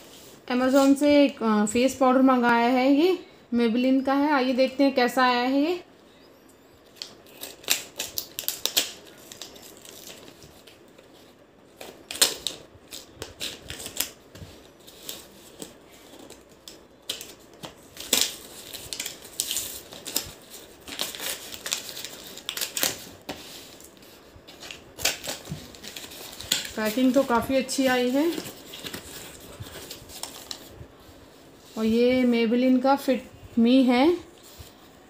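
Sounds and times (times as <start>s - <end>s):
packaging crinkling and rustling: 6.8s - 31.0s.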